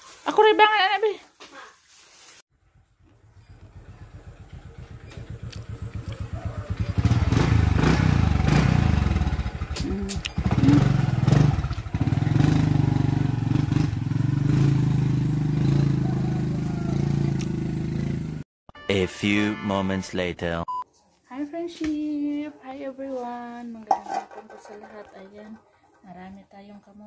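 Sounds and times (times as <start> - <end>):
small motorcycle engine running: 2.6 - 18.4.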